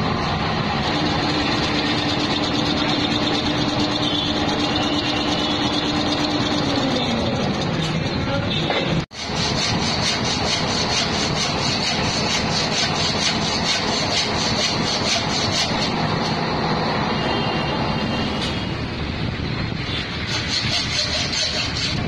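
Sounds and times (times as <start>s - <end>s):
metal lathe running: 0.0s - 8.1s, 9.1s - 16.9s, 20.1s - 22.0s
hacksaw rasping through metal: 9.1s - 16.0s, 20.1s - 22.0s.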